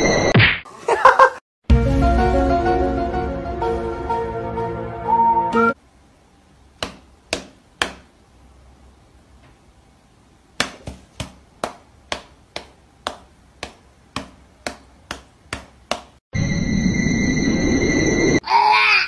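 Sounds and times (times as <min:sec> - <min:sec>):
paw slapping hand: 0:06.8 - 0:08.1, 0:10.6 - 0:16.1.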